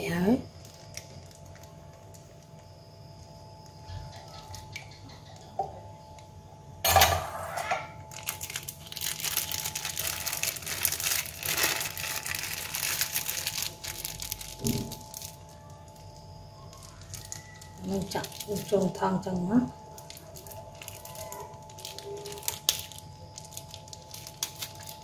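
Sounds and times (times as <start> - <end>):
plastic bag crinkling: 0.0 - 2.8, 8.0 - 25.0.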